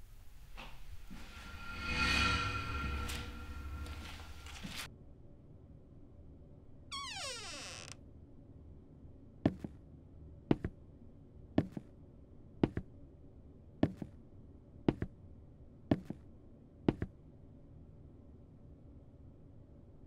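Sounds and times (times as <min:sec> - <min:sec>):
paired thumps: 0:10.5 - 0:10.8, 0:16.9 - 0:17.1.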